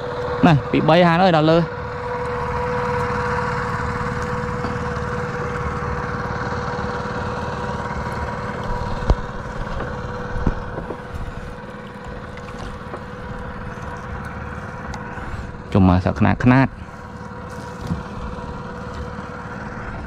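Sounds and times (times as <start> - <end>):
small boat engine running: 0.0 - 20.0.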